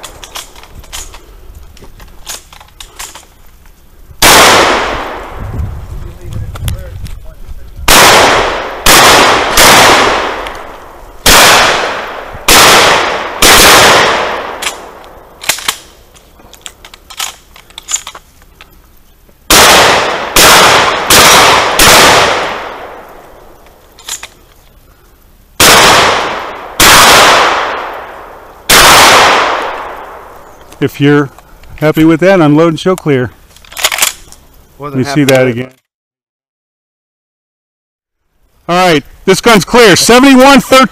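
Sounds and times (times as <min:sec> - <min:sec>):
rifle and shotgun shots: 0:04.2 - 0:05.4, 0:07.8 - 0:15.9, 0:19.5 - 0:23.2, 0:25.6 - 0:30.3, 0:33.7 - 0:34.2.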